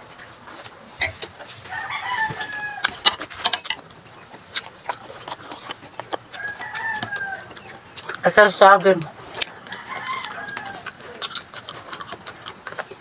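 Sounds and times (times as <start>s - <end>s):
rooster crowing: 1.7s - 3.0s, 6.3s - 7.6s, 9.5s - 11.0s
mouth clicks from eating: 2.8s - 8.3s, 9.0s - 13.0s.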